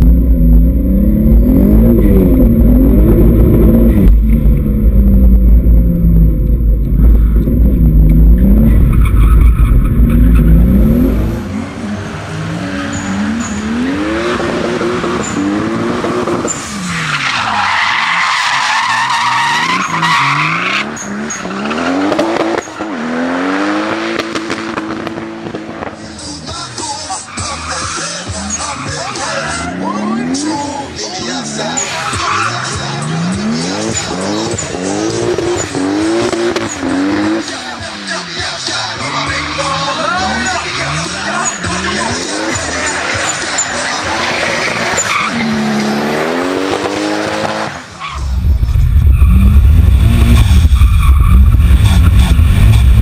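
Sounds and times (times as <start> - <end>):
car engine revving: 0.0 - 53.0
tyres squealing: 16.5 - 22.9, 26.1 - 46.2.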